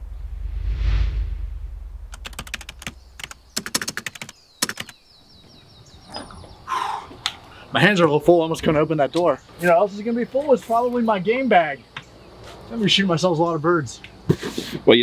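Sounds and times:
low whoosh: 0.0 - 3.6
rapid keyboard typing clicks: 2.2 - 5.0.

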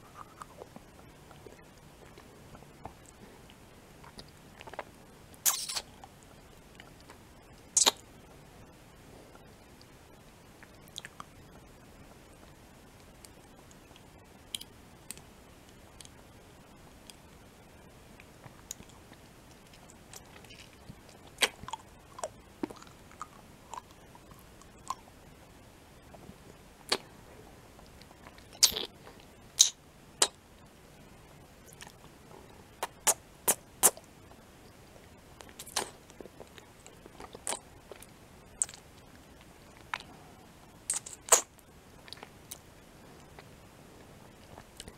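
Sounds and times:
mouth eating sounds: 4.0 - 5.9, 7.8 - 8.0, 28.3 - 30.4, 32.8 - 34.0, 35.4 - 36.6, 37.2 - 38.9, 40.9 - 42.6.

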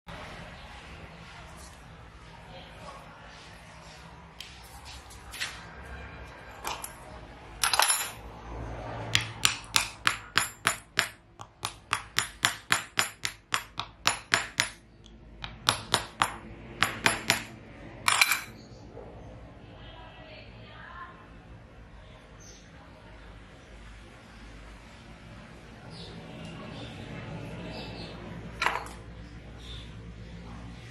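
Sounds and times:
small hammer tapping: 9.1 - 17.5.

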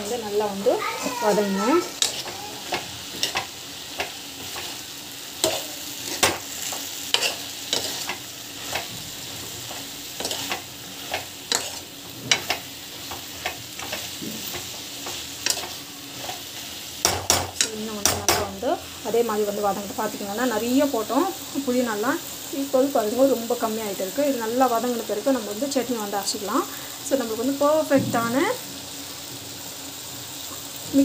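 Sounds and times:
vegetables sizzling in oil: 0.0 - 31.0
spatula tapping and scraping pan: 1.8 - 4.8, 5.4 - 9.0, 9.7 - 16.4, 17.0 - 18.6.

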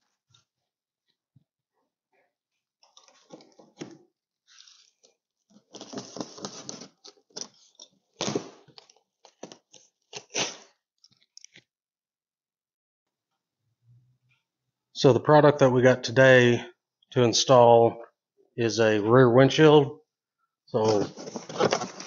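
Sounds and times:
cardboard crackling and tearing: 4.6 - 10.7, 20.8 - 22.0
knife cutting tape and cardboard: 9.4 - 10.7.

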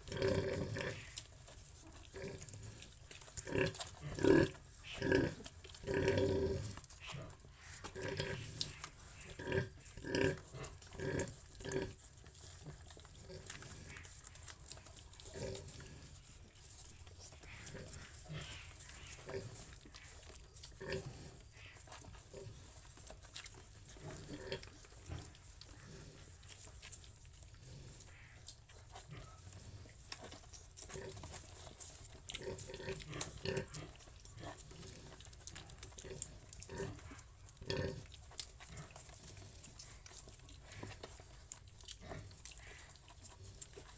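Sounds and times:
pig grunting: 0.0 - 1.4, 2.0 - 16.4, 17.3 - 20.1, 20.7 - 22.8, 23.9 - 26.4, 32.3 - 43.9.

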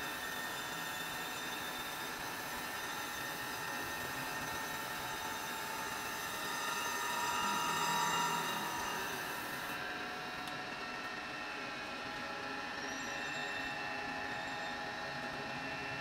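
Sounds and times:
grinding wheel grinding metal: 0.0 - 9.9.

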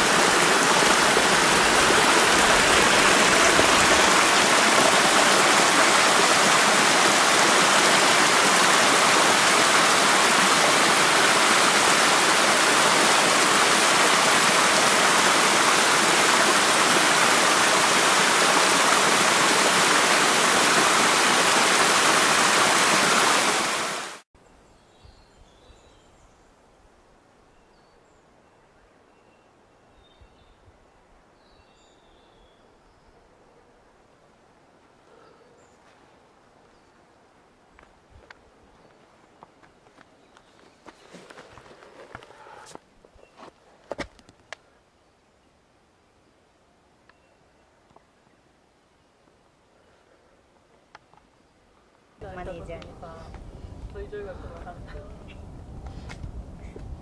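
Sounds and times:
rushing water of a stream: 0.0 - 24.2.

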